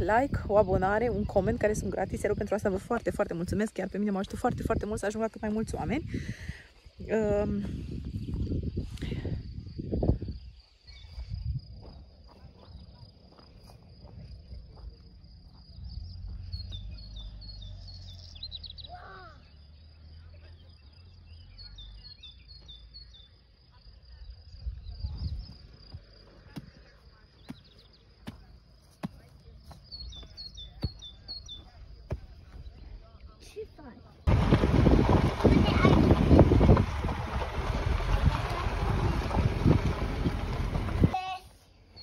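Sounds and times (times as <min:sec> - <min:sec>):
wind rumble on microphone: 0:00.0 - 0:17.9, 0:24.1 - 0:26.8, 0:34.2 - 0:41.4
bird chirping: 0:15.6 - 0:33.1.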